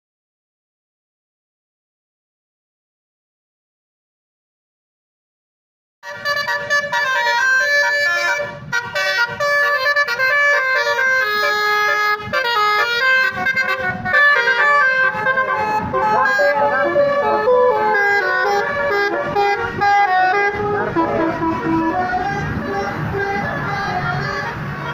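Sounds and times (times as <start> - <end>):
bus engine rumble: 6.0 - 24.9
bus horn playing a melody: 6.0 - 24.9
passing traffic: 6.0 - 24.9.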